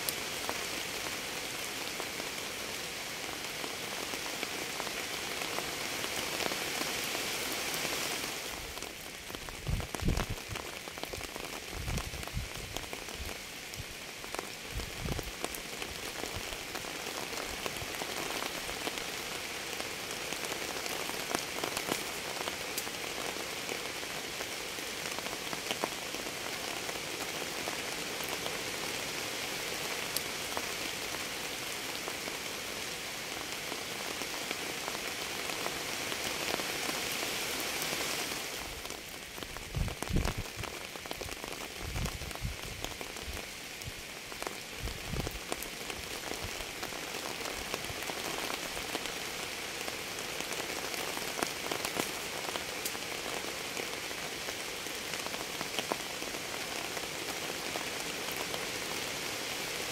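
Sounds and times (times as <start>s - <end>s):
steady rain hiss: 0.0s - 59.9s.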